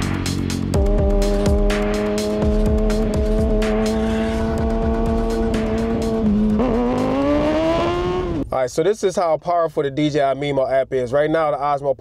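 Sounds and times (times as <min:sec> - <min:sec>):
motorcycle engine running: 0:00.0 - 0:08.4
background music: 0:00.0 - 0:09.2.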